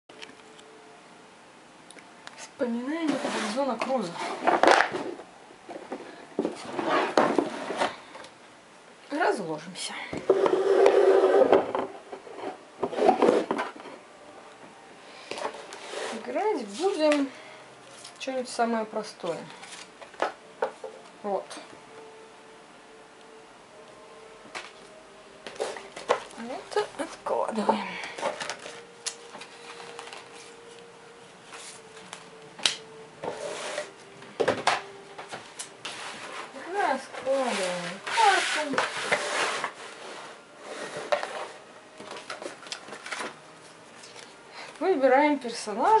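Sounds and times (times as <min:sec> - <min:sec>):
cardboard box lid scraping: 0:03.0 - 0:05.2, 0:06.5 - 0:08.1, 0:10.3 - 0:13.8, 0:15.4 - 0:16.3, 0:33.2 - 0:34.0, 0:37.2 - 0:41.6.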